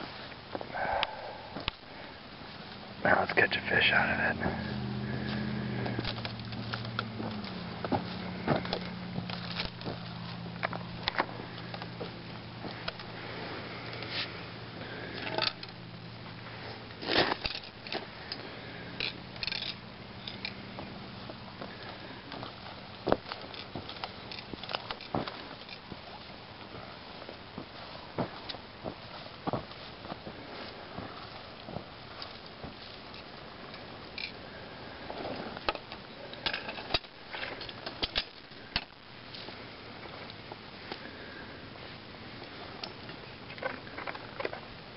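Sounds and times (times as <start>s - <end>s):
steady low hum: 0.0s - 44.9s
crunching and scraping ice: 3.2s - 44.8s
ice needles clinking: 17.0s - 20.7s.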